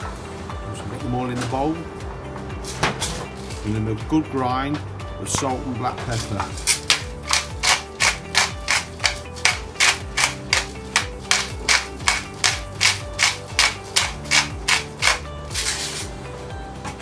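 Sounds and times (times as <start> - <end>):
background music: 0.0 - 17.0
pepper grinder crunching: 6.7 - 16.0.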